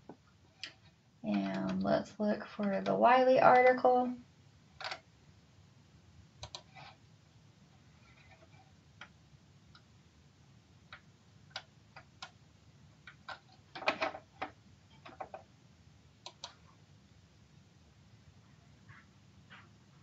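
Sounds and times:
computer mouse clicking: 6.4s - 7.0s, 10.9s - 12.4s, 16.2s - 16.6s.

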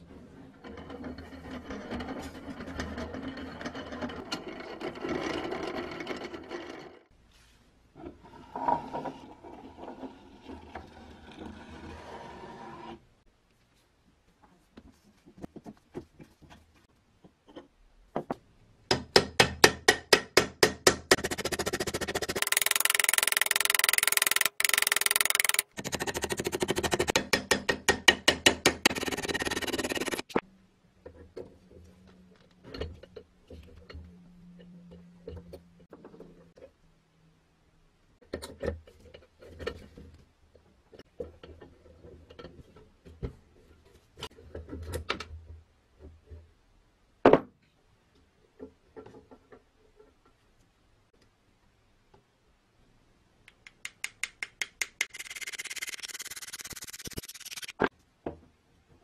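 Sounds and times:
metal parts clicking and knocking: 19.8s - 30.4s, 53.7s - 57.9s.

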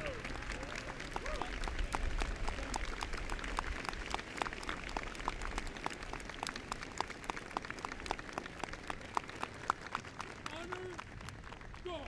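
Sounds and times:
crowd applauding: 0.0s - 12.0s.

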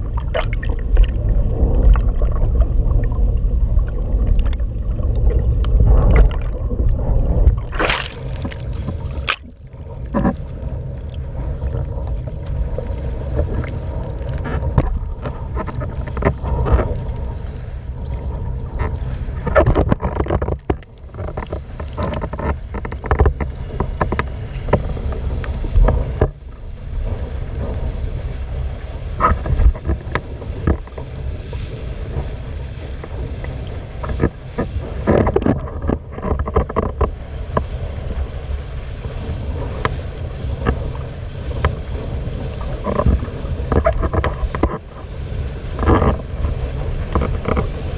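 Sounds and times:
water rushing and splashing: 0.0s - 47.9s
wind rumbling on microphone: 0.0s - 47.9s.

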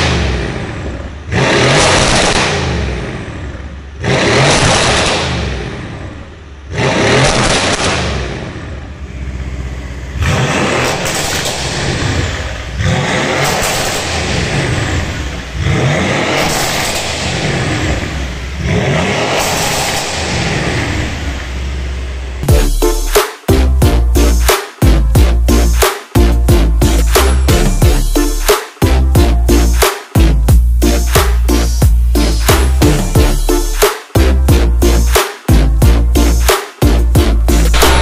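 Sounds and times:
car engine revving in blips: 0.0s - 38.0s.

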